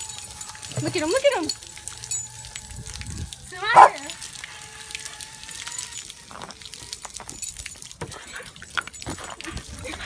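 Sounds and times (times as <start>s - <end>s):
metal collar tags jingling: 0.0s - 3.9s, 5.6s - 10.0s
water splashing from hose: 0.0s - 10.0s
dog snapping at water: 3.1s - 4.1s.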